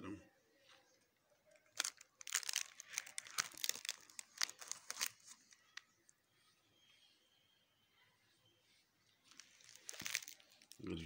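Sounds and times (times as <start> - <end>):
plastic sleeves crackling: 1.5 - 5.9, 9.2 - 11.0.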